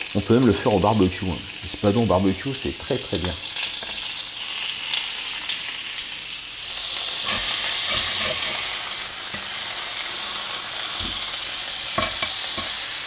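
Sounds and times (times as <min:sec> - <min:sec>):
fish sizzling on grill pan: 0:00.0 - 0:13.0
fork scraping pan: 0:07.2 - 0:08.7.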